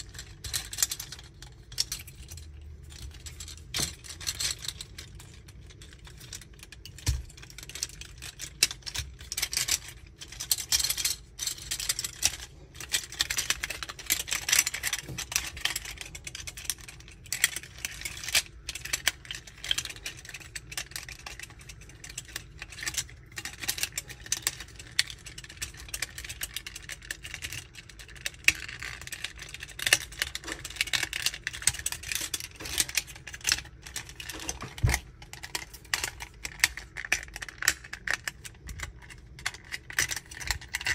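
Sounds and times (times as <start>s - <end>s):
plastic toy parts clicking and snapping: 0.0s - 40.9s.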